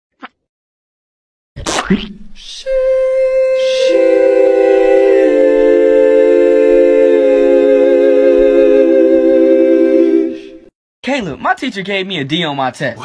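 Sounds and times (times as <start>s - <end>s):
choir singing held chord: 2.7s - 10.7s.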